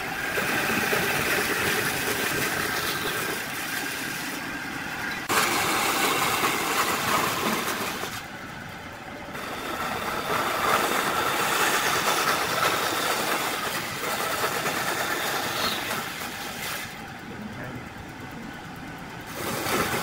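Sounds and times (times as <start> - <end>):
bandsaw cutting wood: 5.2 - 8.2, 9.4 - 17.0, 19.3 - 20.0.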